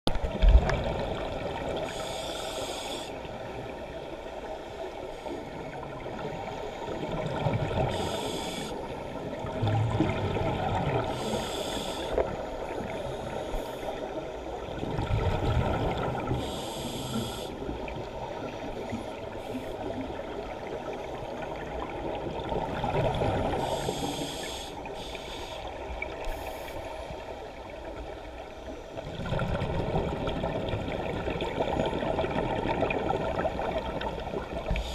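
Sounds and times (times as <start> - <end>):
underwater water rush: 0.1 - 34.9
short hissing bursts: 7.9 - 8.7, 11.2 - 12.1.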